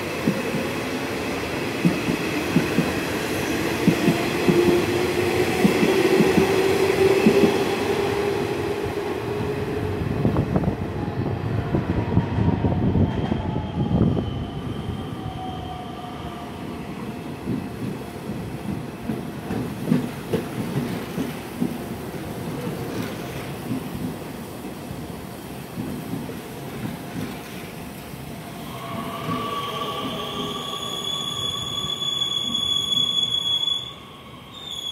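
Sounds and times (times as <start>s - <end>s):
train wheel noise: 0.0s - 10.8s, 17.4s - 33.4s.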